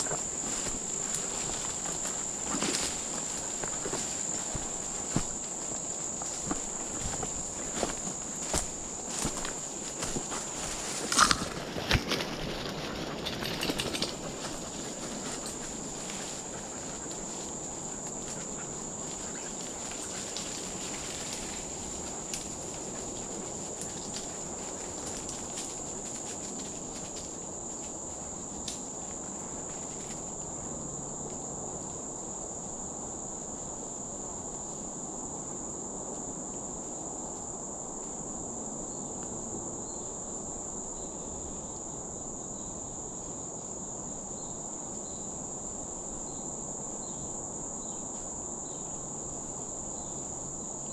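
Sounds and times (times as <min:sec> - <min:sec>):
insect chorus drone: 0:00.0 - 0:50.9.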